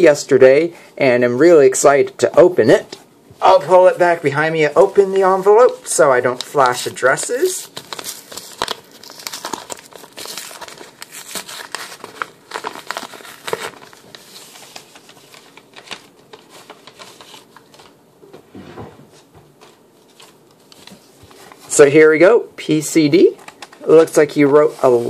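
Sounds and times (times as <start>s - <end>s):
paper crinkling: 3.5s - 18.0s, 19.5s - 21.8s, 23.2s - 25.0s
paper envelope tearing: 7.6s - 17.9s.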